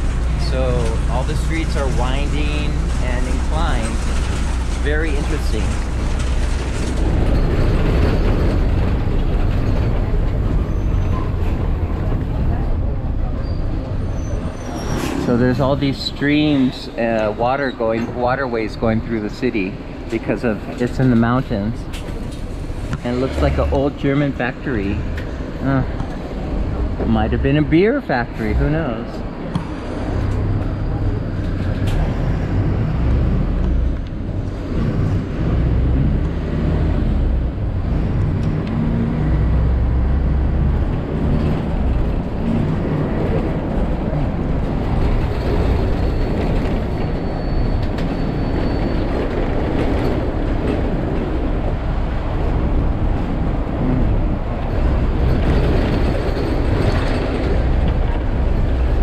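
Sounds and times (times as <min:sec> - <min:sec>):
bus engine rumble: 0:00.0 - 0:59.0
road noise: 0:00.0 - 0:59.0.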